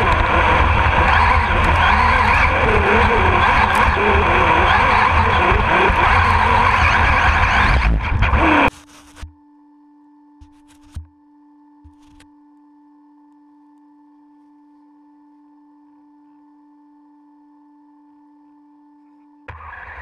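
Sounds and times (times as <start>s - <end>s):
toy car motor whine: 0.0s - 7.8s
chassis rumble and rattle: 0.0s - 8.7s
faint steady tone: 8.7s - 20.0s.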